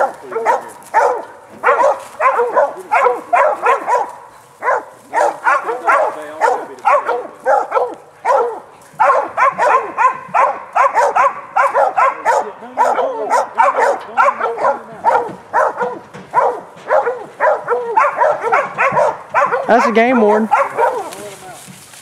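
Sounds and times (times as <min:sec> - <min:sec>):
dogs barking rapidly: 0:00.0 - 0:21.3.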